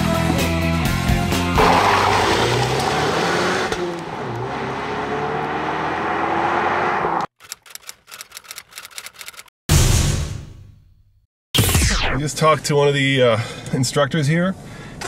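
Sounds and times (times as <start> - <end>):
car engine accelerating: 1.6 - 7.3
typewriter-like key clicks: 7.4 - 9.5.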